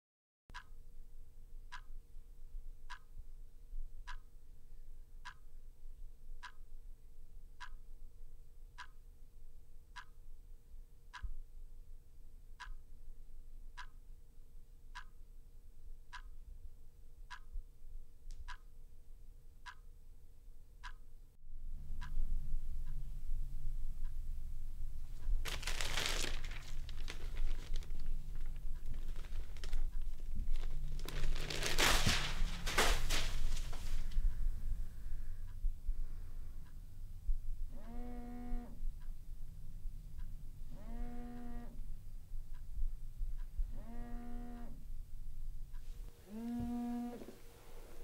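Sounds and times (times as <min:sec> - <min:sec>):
clock ticking: 0:00.5 - 0:00.8, 0:01.7 - 0:02.0, 0:02.8 - 0:03.2, 0:04.1 - 0:04.4, 0:05.2 - 0:05.5, 0:06.4 - 0:06.7, 0:07.6 - 0:07.9, 0:08.8 - 0:09.0, 0:10.0 - 0:10.2, 0:12.6 - 0:12.9, 0:13.8 - 0:14.0, 0:15.0 - 0:15.3, 0:16.1 - 0:16.4, 0:17.3 - 0:17.6, 0:18.5 - 0:18.8, 0:19.6 - 0:19.9, 0:20.8 - 0:21.0
faint steady hum: 0:00.5 - 0:48.0
low rumbling room noise: 0:00.8 - 0:48.0.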